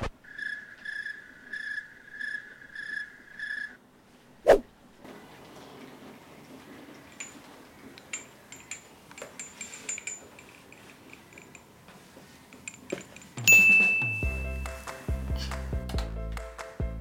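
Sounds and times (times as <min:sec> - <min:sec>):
toy kitchen pieces clinking: 0:07.0 - 0:11.8
loud bright chime: 0:13.4 - 0:14.9
music with steady beat: 0:13.4 - 0:17.0.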